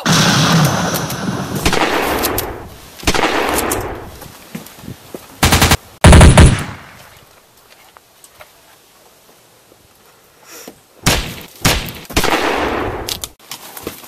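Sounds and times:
single gunshots: 0:00.1 - 0:04.1, 0:05.5 - 0:07.1, 0:11.0 - 0:13.2
automatic gunfire bursts: 0:05.4 - 0:06.8.

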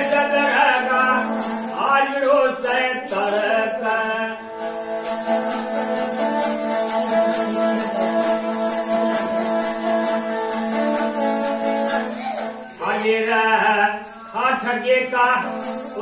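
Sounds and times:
man singing folk song: 0:00.0 - 0:04.7, 0:12.7 - 0:16.0.

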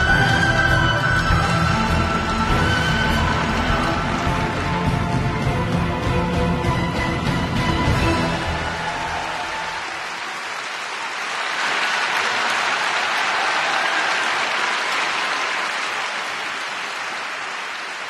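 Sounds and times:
crowd applauding: 0:00.0 - 0:06.4, 0:07.2 - 0:18.0
skating program music: 0:00.0 - 0:09.8.

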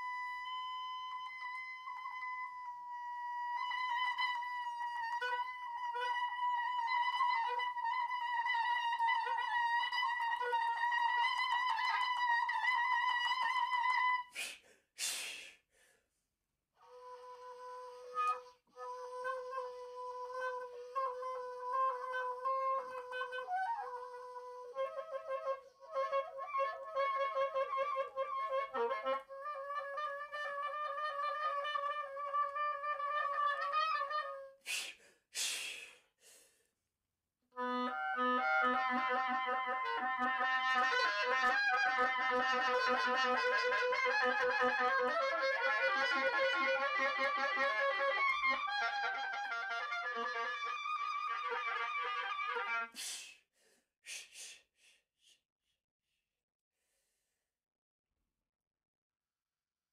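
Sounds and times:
oboe playing: 0:00.0 - 0:14.3, 0:16.8 - 0:34.6, 0:37.5 - 0:53.1
breaths: 0:14.3 - 0:16.2, 0:34.6 - 0:36.8, 0:53.0 - 0:55.4, 0:56.8 - 0:57.5.

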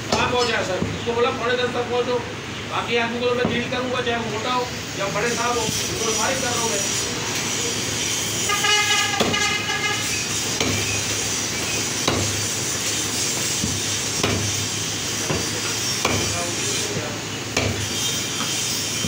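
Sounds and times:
cleaver chopping ribs on wood: 0:09.1 - 0:09.5, 0:10.6 - 0:11.0, 0:11.6 - 0:12.5, 0:13.3 - 0:16.5, 0:17.5 - 0:18.6.

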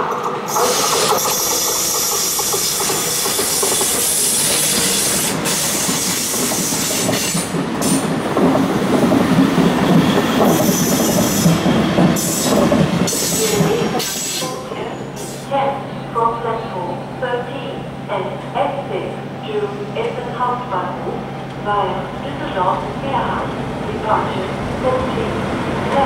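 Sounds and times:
train wheels clattering on rails: 0:00.0 - 0:14.6.

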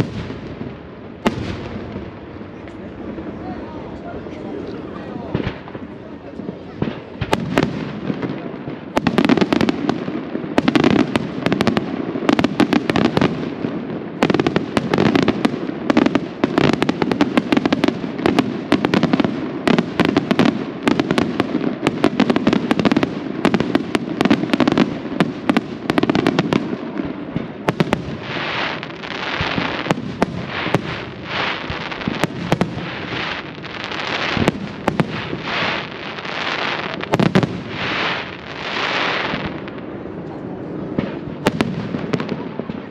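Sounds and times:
firework shells bursting and crackling: 0:06.6 - 0:39.9.

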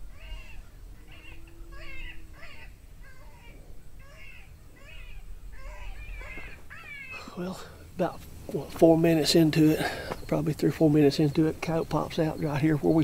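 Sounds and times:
electronic animal distress cry: 0:00.0 - 0:07.2.

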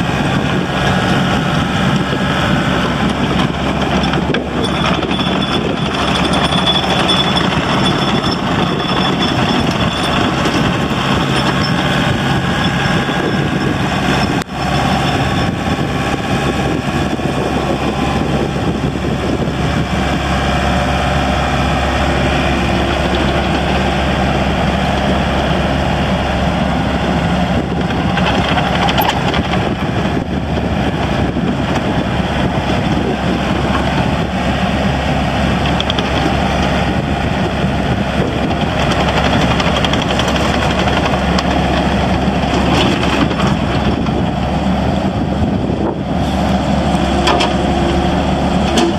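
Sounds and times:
excavator diesel engine: 0:00.0 - 0:48.9.

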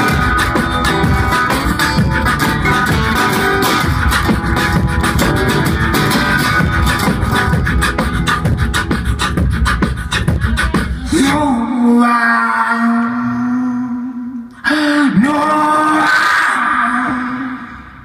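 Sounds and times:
resonator guitar playing: 0:00.0 - 0:10.7
person beatboxing into microphone: 0:06.0 - 0:18.0.

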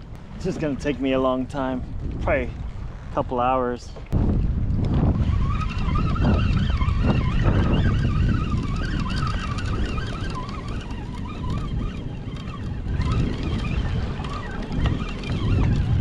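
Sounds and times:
wind rumble on microphone: 0:00.0 - 0:16.0
fishing reel gears whining: 0:04.8 - 0:16.0.

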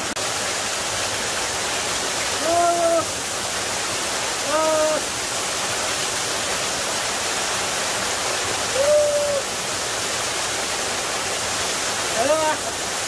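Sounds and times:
waterfall pouring onto rocks: 0:00.0 - 0:13.0
person calling out: 0:02.4 - 0:03.1, 0:04.4 - 0:05.1, 0:08.7 - 0:09.4.

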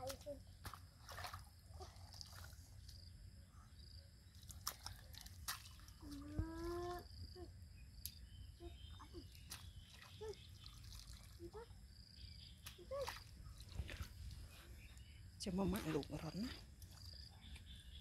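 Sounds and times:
mud sloshing and squelching: 0:00.0 - 0:03.1, 0:04.3 - 0:07.0, 0:09.0 - 0:11.9, 0:12.5 - 0:17.6.

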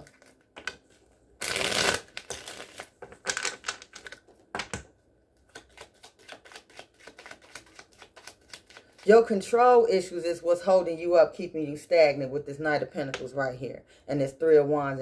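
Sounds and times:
cards shuffling: 0:01.4 - 0:04.8, 0:05.4 - 0:09.1.

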